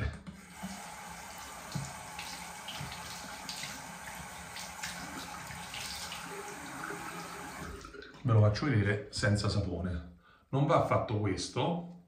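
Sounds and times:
tap water splashing: 0.2 - 8.3.

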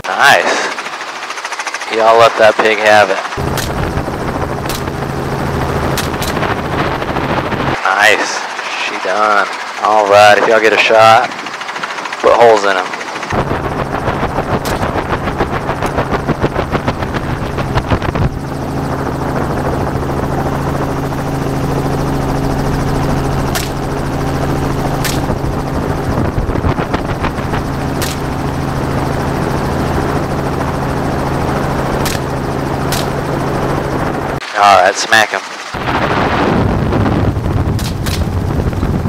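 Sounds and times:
helicopter engine and rotor drone: 0.0 - 39.0.

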